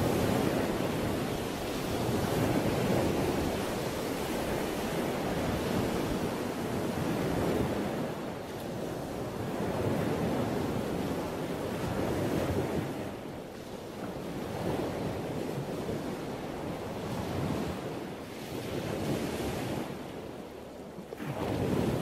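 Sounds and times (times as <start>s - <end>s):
ocean waves rushing: 0.0s - 8.5s.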